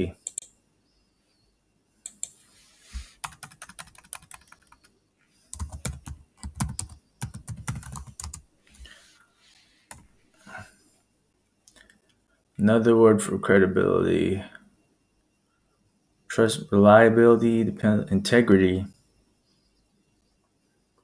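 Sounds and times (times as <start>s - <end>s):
computer keyboard typing: 0.2s - 0.5s, 2.1s - 2.4s, 3.2s - 4.9s, 5.5s - 8.4s.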